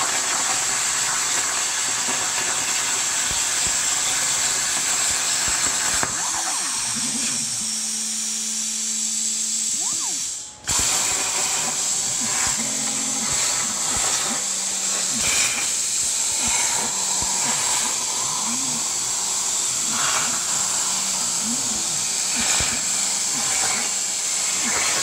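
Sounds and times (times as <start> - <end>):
plasma cutter arc hissing: 0.0 - 25.0.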